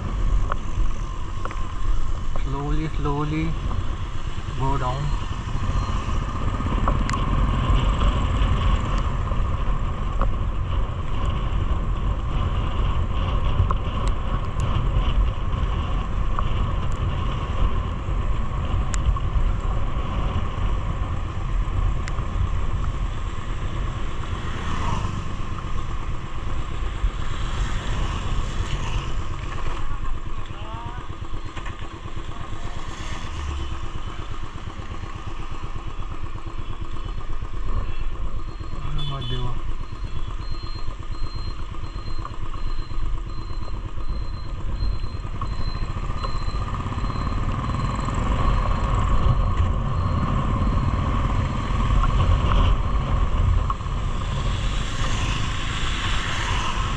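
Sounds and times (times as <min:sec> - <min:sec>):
motorcycle engine at low revs: 0:00.0 - 0:56.9
wind and wet road hiss: 0:52.3 - 0:56.9.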